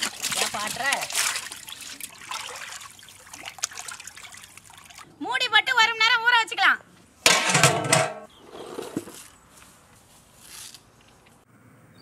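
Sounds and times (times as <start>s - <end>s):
metal lid clanging on pot: 7.3s - 8.3s.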